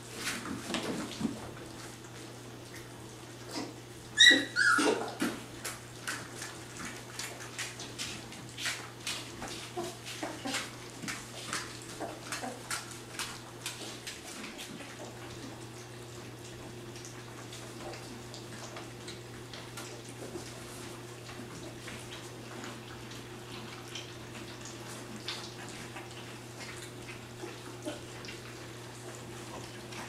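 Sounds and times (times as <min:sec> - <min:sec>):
puppies lapping food: 0:00.0 - 0:30.0
puppy whimpering cry: 0:04.2 - 0:05.2.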